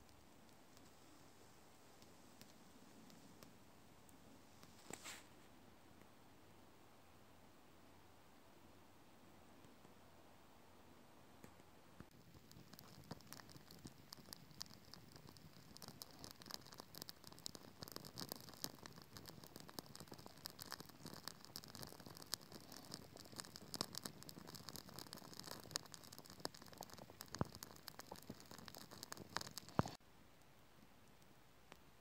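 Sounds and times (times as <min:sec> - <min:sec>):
wood fire crackling and popping: 0:11.5 - 0:30.0.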